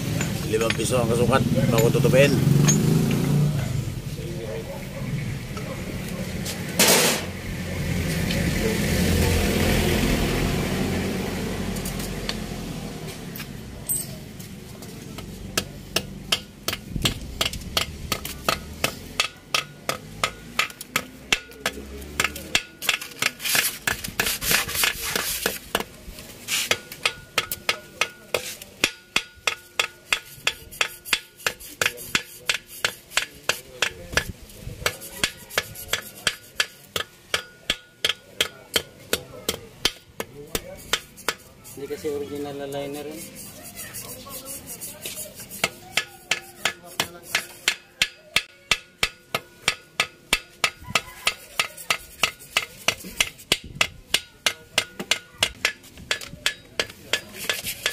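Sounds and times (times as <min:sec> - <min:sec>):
hammer tapping on metal: 0:00.0 - 0:03.2, 0:15.2 - 0:24.0, 0:26.7 - 0:41.5, 0:45.6 - 0:57.9.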